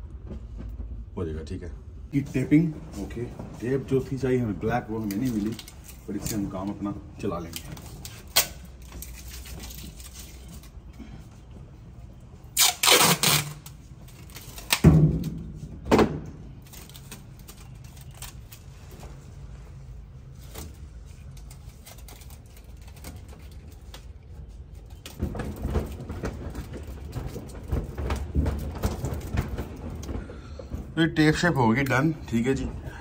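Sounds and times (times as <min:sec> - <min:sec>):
tape scraping and rustling: 0:03.0 - 0:11.0, 0:12.4 - 0:15.8, 0:16.5 - 0:30.3
packing tape ripping off roll: 0:07.4 - 0:10.8, 0:12.5 - 0:15.4, 0:16.6 - 0:18.7.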